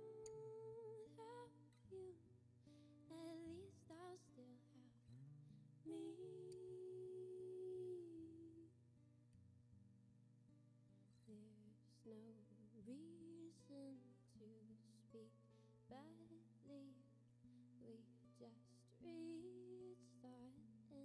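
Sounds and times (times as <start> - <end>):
woman singing: 0.0 - 2.3, 3.0 - 5.1, 5.8 - 8.7, 11.2 - 17.2, 17.8 - 21.0
acoustic guitar: 0.0 - 21.0.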